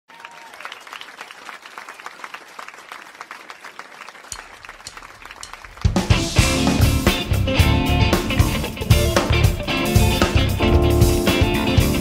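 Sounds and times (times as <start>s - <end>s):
audience applauding: 0.1s - 7.3s.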